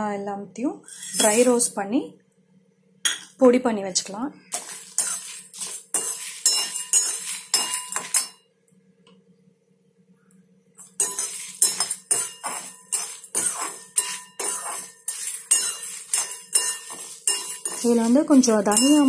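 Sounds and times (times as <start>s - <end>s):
metal spoon scraping a metal pan: 0.8s - 1.7s, 4.5s - 8.4s, 10.8s - 19.0s.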